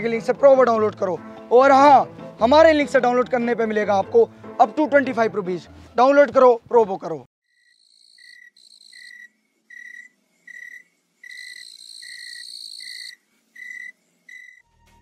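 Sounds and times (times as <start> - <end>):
crickets chirping: 7.5 - 14.6
high cricket trill: 7.5 - 14.6.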